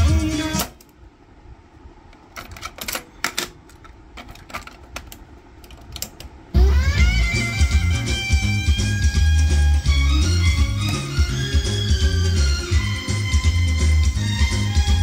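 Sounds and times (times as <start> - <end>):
music from cassette deck: 0.0 - 0.8, 6.6 - 15.0
cassette being handled: 2.1 - 6.4.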